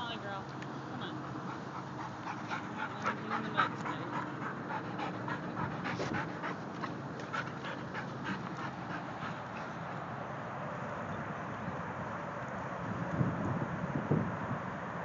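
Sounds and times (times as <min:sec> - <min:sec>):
dog panting: 0:01.0 - 0:10.3.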